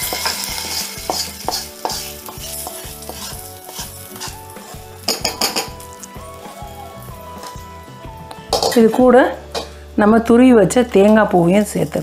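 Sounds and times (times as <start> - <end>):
wooden spatula scraping metal: 0.0 - 6.0
hot oil sizzling: 0.0 - 12.0.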